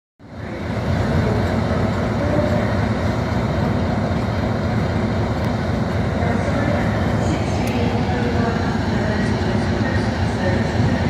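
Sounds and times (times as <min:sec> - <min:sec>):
diesel locomotive engine running: 0:00.2 - 0:11.0.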